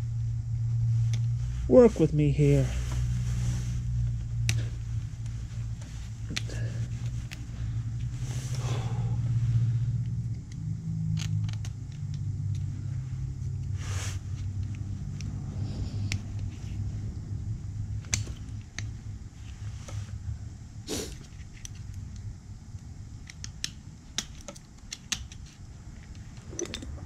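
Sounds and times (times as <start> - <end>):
low machine hum: 0.0 - 27.0.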